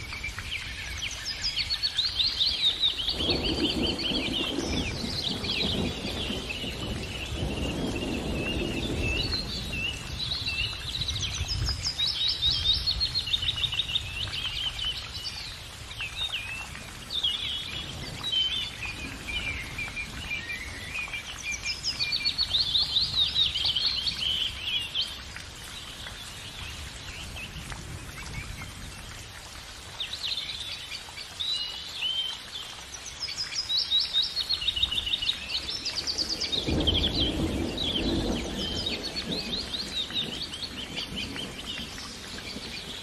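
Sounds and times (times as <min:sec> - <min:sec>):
songbirds chirping and singing: 0:00.0 - 0:28.7, 0:30.1 - 0:43.0.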